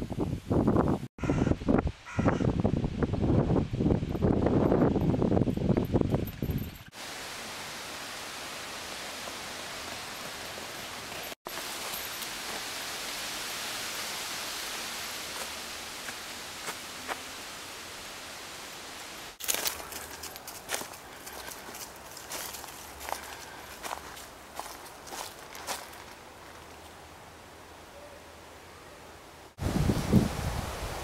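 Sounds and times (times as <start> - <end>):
steady hiss: 6.9 - 19.9
crackling rustles and clicks: 19.4 - 27.0.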